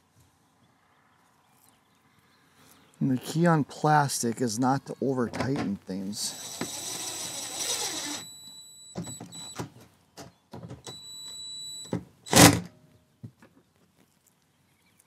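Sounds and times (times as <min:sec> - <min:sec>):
power drill whining: 0:06.2 - 0:09.6.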